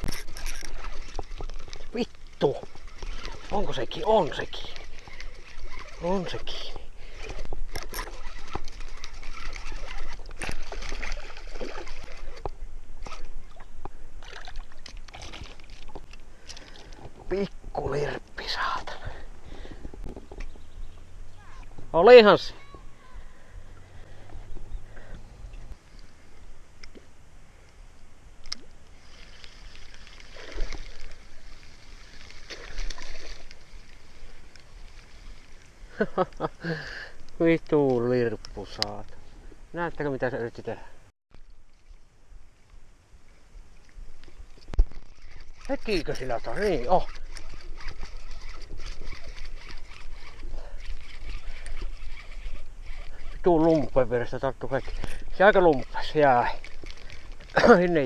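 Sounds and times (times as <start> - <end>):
fishing reel winding: 0.0 - 1.8, 7.2 - 11.4, 45.2 - 57.4
knocks of rod and reel: 0.0 - 17.8, 19.6 - 20.6, 44.2 - 57.6
water sloshing around boat: 0.0 - 26.2, 28.9 - 36.6, 37.2 - 58.0.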